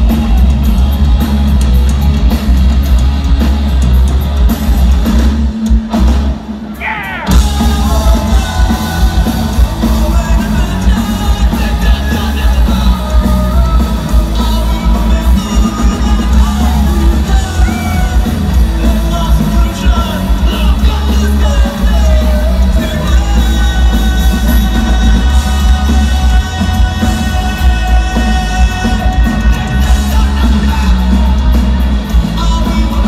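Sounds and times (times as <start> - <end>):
punk rock band playing: 0.0 - 33.0
person singing: 6.8 - 33.0.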